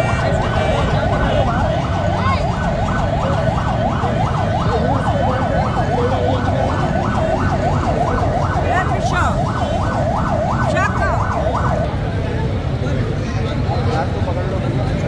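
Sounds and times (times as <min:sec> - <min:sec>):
siren in fast yelp: 0:00.0 - 0:12.2.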